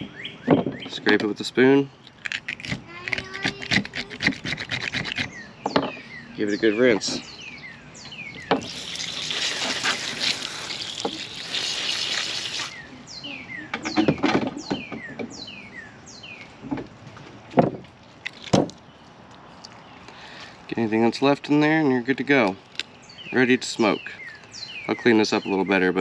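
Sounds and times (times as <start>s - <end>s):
hose nozzle spray hissing: 8.6s - 12.8s.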